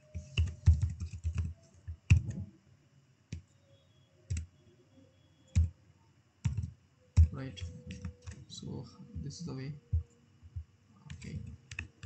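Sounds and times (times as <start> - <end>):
keyboard typing: 0.0 - 2.5, 4.3 - 4.5, 5.5 - 5.7, 6.4 - 9.3, 9.9 - 12.0.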